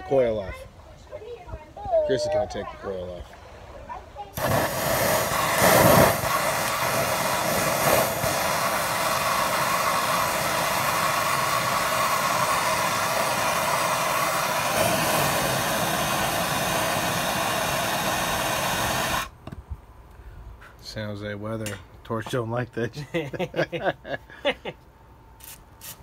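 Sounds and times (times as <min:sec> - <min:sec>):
gas torch roaring hiss: 0:04.4 - 0:19.4.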